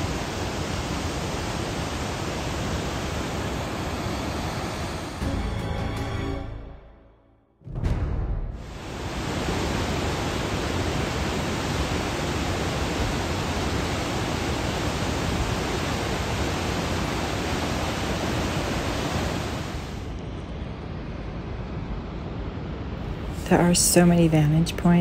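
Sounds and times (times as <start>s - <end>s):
water rushing over boulders: 8.7s - 20.1s.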